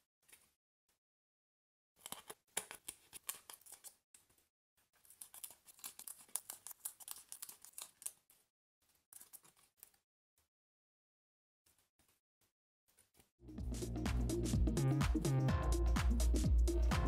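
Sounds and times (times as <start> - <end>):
plastic tool scratching card: 2.0 - 4.0, 5.0 - 8.3, 9.2 - 10.0.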